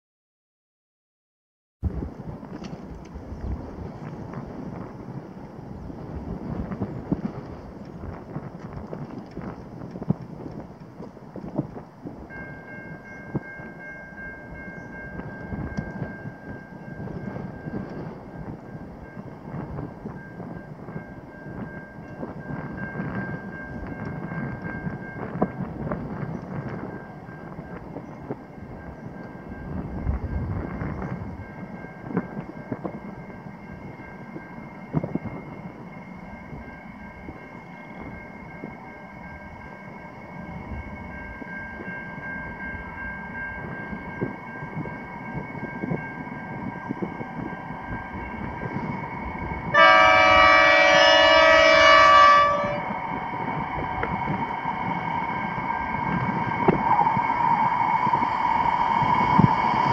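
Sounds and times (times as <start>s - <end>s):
diesel locomotives approaching: 1.8s - 59.9s
train horn blast: 49.7s - 53.0s.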